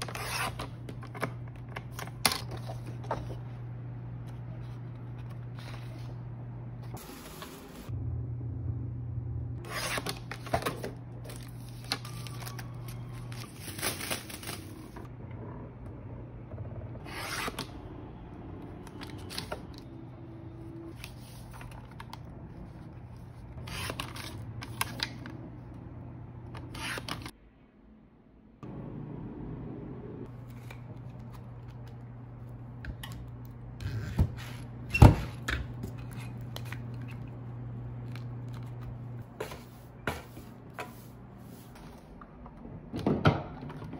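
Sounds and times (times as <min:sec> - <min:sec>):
steady low hum: 0:00.0 - 0:13.4, 0:14.3 - 0:42.9
paper shuffling: 0:04.2 - 0:06.2, 0:09.7 - 0:15.0, 0:20.9 - 0:25.3.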